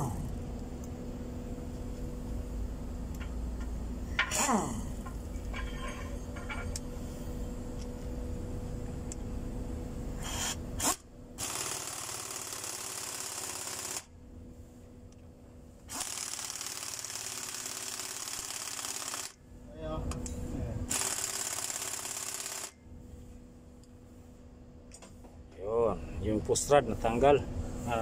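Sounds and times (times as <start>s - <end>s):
steady low hum: 0.0s - 28.0s
air impact wrench: 10.2s - 14.1s, 15.9s - 19.4s, 20.9s - 22.8s.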